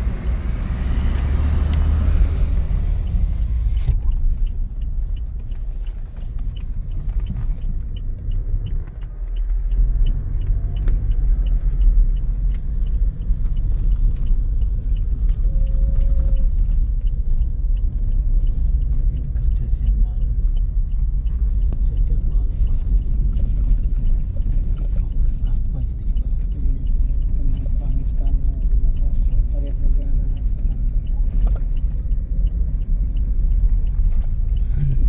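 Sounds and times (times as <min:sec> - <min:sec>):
car engine and tyres drone: 0:00.0 - 0:35.0
faint regular ticking: 0:00.0 - 0:35.0.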